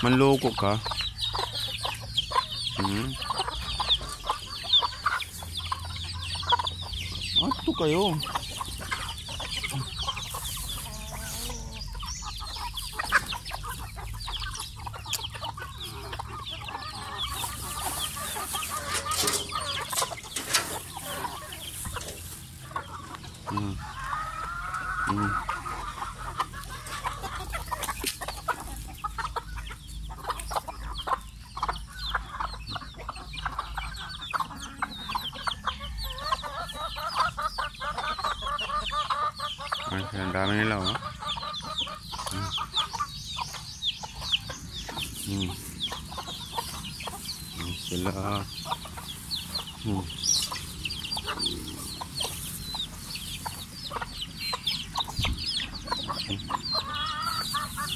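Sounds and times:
chickens clucking: 0.0 - 57.9.

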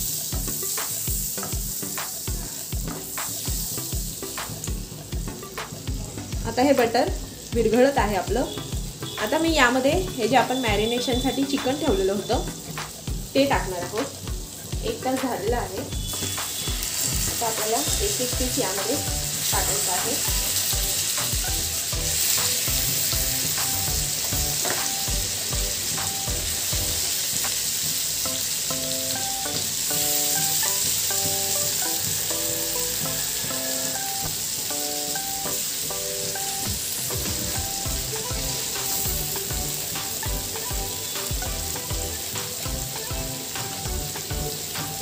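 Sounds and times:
chicken sizzling in a pan: 0.0 - 45.0
soft background music: 0.0 - 45.0.

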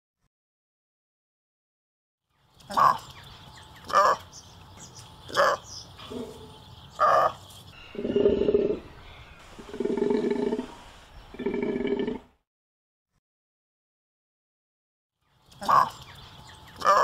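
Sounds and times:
takin calling: 7.0 - 12.2.

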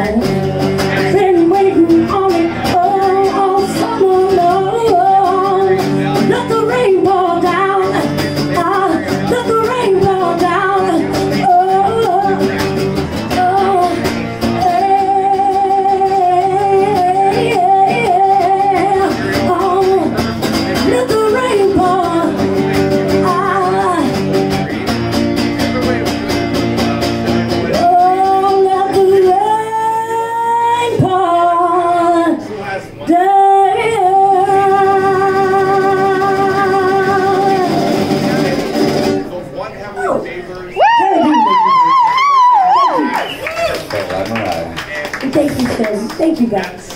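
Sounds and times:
woman singing into microphone: 0.0 - 24.3, 27.7 - 32.5, 33.1 - 38.3
strummed acoustic guitar: 0.0 - 39.4.

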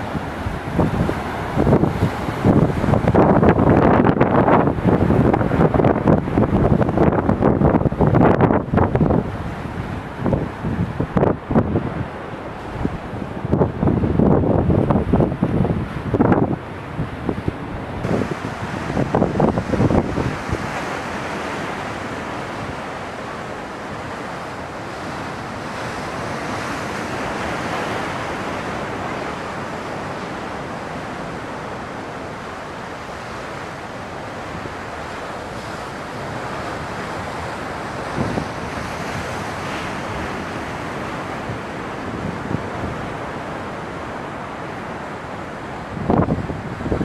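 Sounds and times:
wind on microphone: 0.0 - 47.0
waves breaking against rocks: 18.0 - 32.1.

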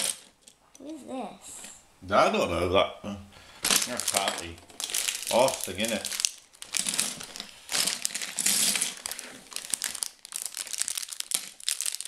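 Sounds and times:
plastic bricks clattering: 0.0 - 0.3, 3.6 - 12.0.

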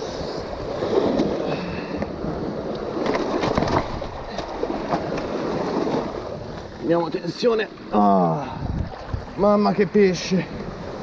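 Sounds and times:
surf washing over rocks: 0.0 - 11.0
fish knocking and scraping on rocks: 3.0 - 6.0.

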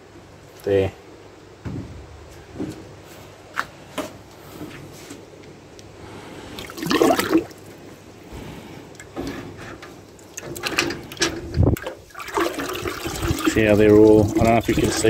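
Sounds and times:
dull thump: 1.6 - 2.0
slurry sloshing and gurgling: 6.6 - 7.7, 10.2 - 15.0.

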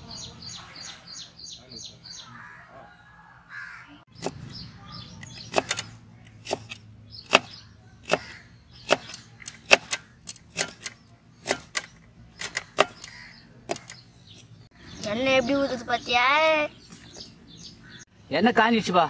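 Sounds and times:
knife chopping on wooden block: 5.4 - 11.8.

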